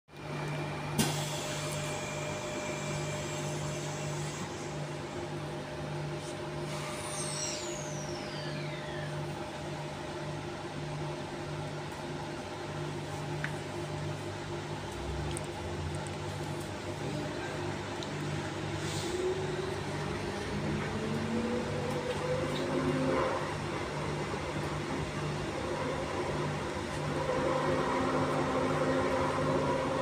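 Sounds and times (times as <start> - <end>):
train equipment hum: 12.8 - 30.0.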